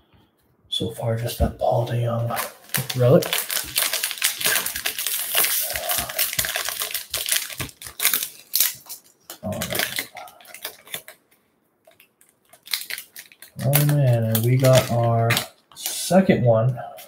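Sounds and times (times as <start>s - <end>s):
foil wrapper crinkling and tearing: 2.2s - 11.2s, 11.8s - 16.1s.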